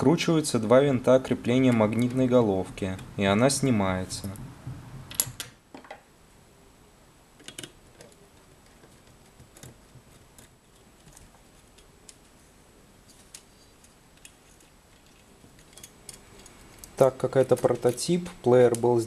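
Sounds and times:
small metal parts clicking: 13.0 - 19.0.

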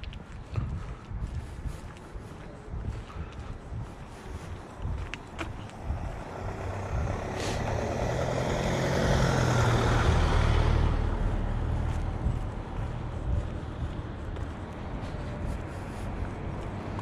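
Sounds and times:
vehicle driving past: 5.7 - 15.0.

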